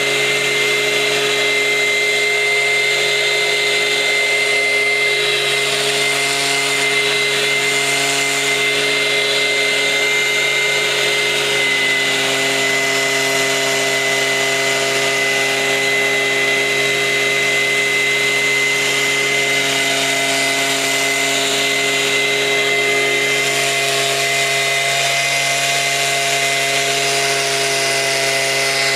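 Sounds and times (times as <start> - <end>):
leaf blower running: 0.0 - 28.9.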